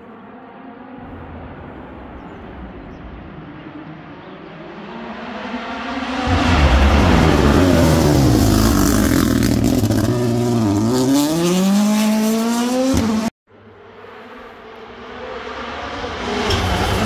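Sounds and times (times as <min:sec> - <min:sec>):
rally car engine at high revs: 0:04.2 - 0:17.0.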